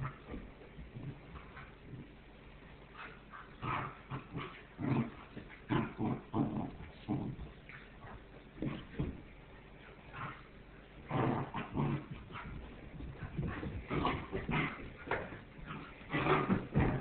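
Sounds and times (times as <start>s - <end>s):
puppies growling: 3.4s - 9.2s, 10.0s - 17.0s.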